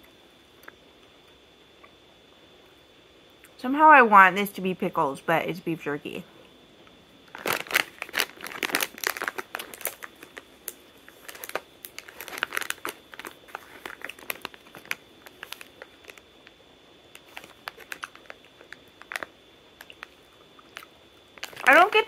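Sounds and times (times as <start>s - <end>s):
foil bag crinkling: 7.2s - 22.0s.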